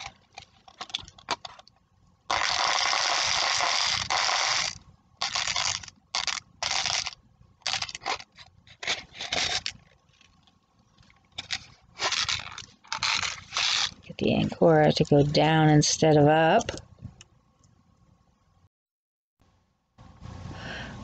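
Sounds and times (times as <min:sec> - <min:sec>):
handling noise scraping and rustling: 0:00.0 - 0:01.9, 0:05.4 - 0:17.2.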